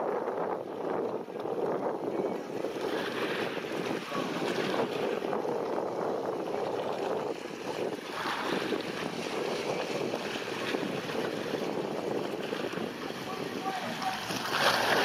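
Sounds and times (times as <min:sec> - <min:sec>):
waves lapping and splashing: 0:00.0 - 0:15.0
wind rushing over microphone: 0:00.0 - 0:15.0.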